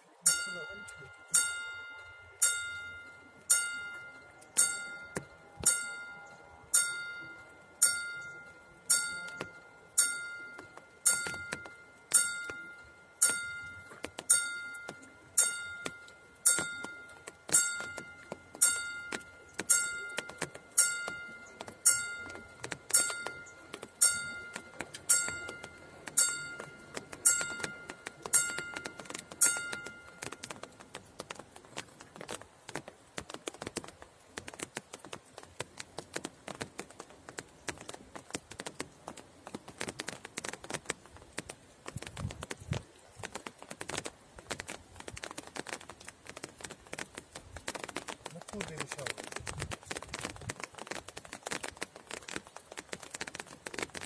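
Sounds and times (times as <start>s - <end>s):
level crossing warning bell: 0.2s - 31.4s.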